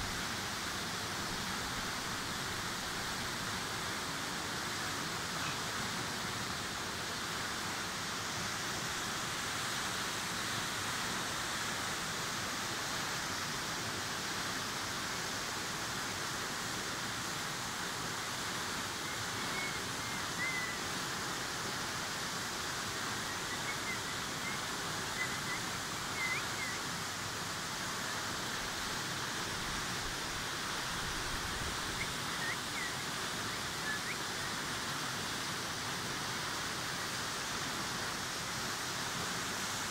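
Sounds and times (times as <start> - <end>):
waterfall rushing: 0.0 - 39.9
faint high chirps: 23.2 - 26.9.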